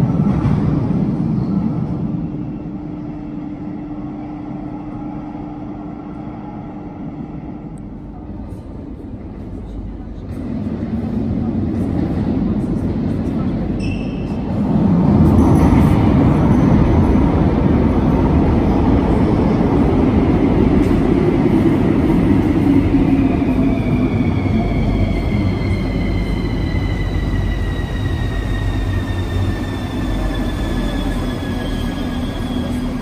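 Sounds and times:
train wheels rumbling on rails: 0.0s - 33.0s
train brakes whining: 23.7s - 33.0s.

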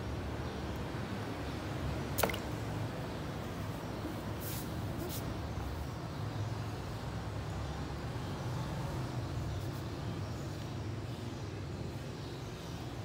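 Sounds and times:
water splashing in a plastic tub: 2.0s - 2.8s.

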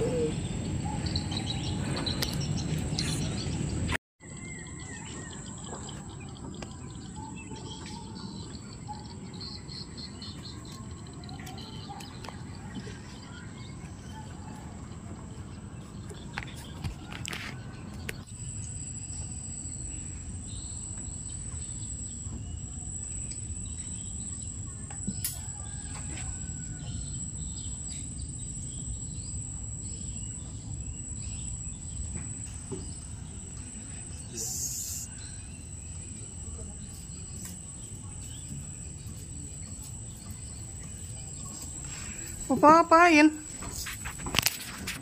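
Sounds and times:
bird chirps: 0.0s - 14.6s.

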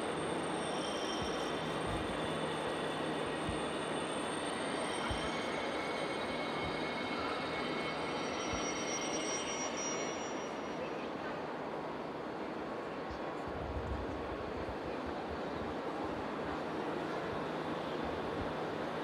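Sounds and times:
faint high steady tones: 0.0s - 12.5s
station hall rushing noise: 0.0s - 19.0s.

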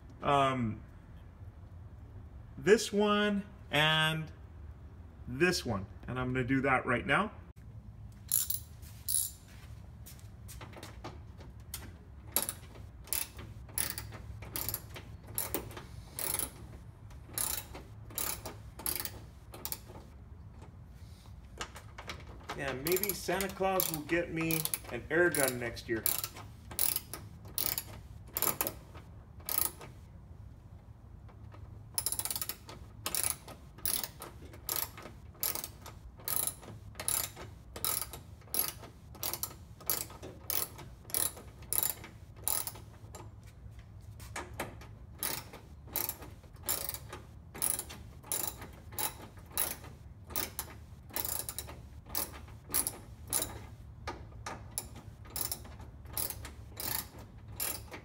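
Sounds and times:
ratchet wrench clicking: 8.3s - 9.4s, 12.4s - 16.7s, 17.3s - 20.0s, 22.6s - 29.9s, 32.0s - 43.0s, 45.2s - 53.7s, 54.5s - 58.0s.

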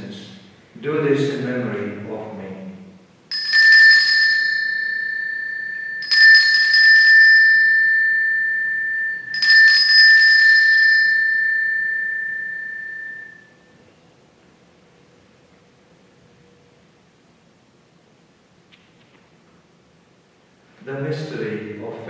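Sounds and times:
altar bells ringing: 3.3s - 13.8s.

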